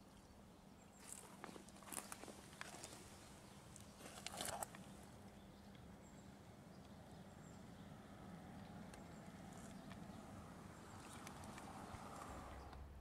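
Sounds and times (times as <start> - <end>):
crunching rustle: 1.0 - 5.2.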